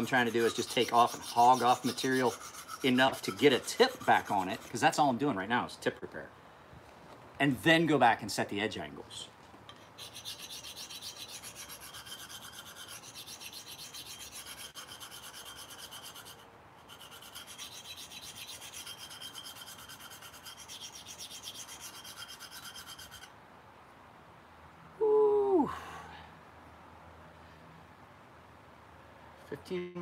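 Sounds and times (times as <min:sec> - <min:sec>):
knife scraping on sharpening stone: 0:00.0 - 0:04.9, 0:09.7 - 0:23.3.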